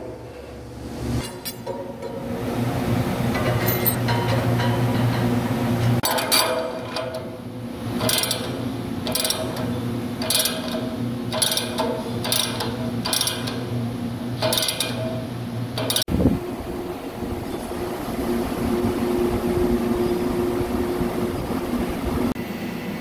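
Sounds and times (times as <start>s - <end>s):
steady hum: 0.0s - 23.0s
ratchet wrench clicking: 10.2s - 13.6s.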